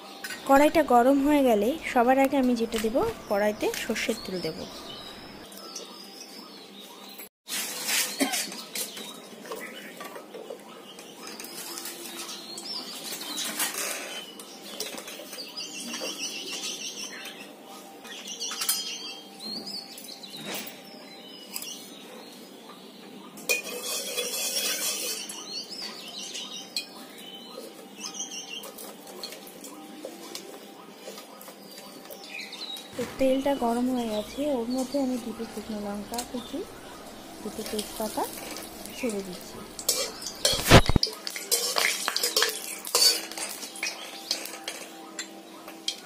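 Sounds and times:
small birds chirping: 0.0s - 7.3s, 24.6s - 46.0s
spoon clinking on metal pan: 23.5s - 25.3s, 39.8s - 40.8s, 41.4s - 45.3s.

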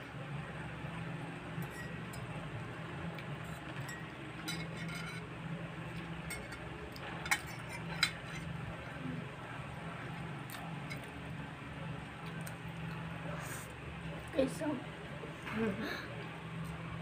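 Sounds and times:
low steady hum: 0.0s - 17.0s
forks clinking on plates: 3.4s - 5.2s, 6.2s - 8.5s.

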